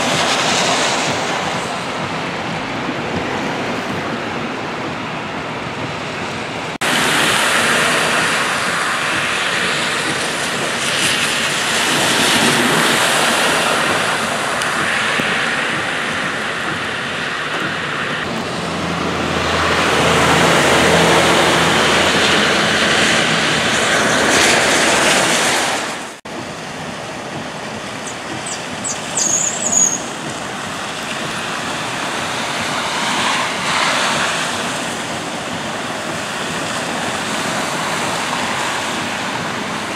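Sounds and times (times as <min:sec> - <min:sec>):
cars swishing through water: 0:00.0 - 0:39.9
heavy rain: 0:00.0 - 0:39.9
running water: 0:06.4 - 0:39.9
vehicle engine humming past: 0:06.6 - 0:26.6
short high chirps: 0:28.1 - 0:30.1.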